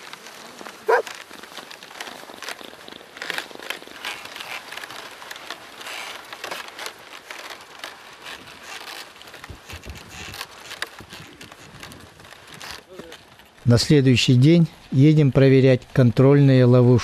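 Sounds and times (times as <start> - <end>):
boots crunching on dry snow: 0.0 - 1.5
horse hooves on snow: 0.0 - 14.7
wooden sledge sliding on snow: 0.0 - 17.0.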